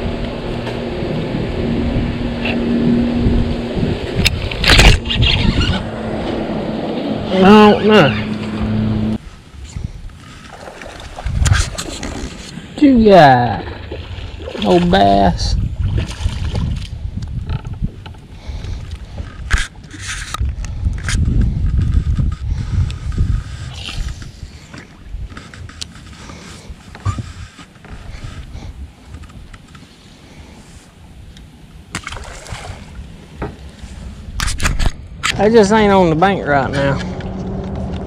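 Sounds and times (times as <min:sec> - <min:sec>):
low rumbling wind: 0:00.0 - 0:38.0
microphone handling noise: 0:11.1 - 0:12.6, 0:15.6 - 0:29.8.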